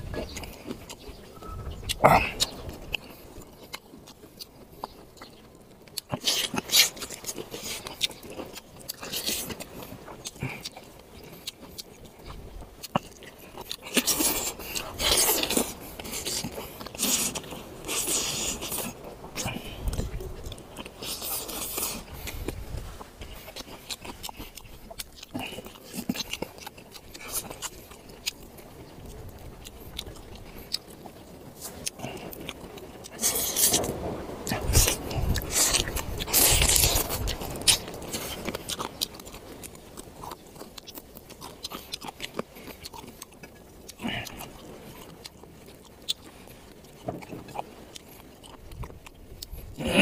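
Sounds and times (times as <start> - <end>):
chewing with mouth clicks: 0.0 - 50.0
smacking and sucking noises: 29.3 - 40.0.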